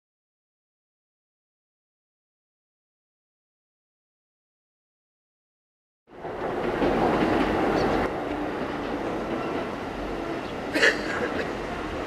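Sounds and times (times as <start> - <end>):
train wheels rumbling on rail: 6.1 - 12.0.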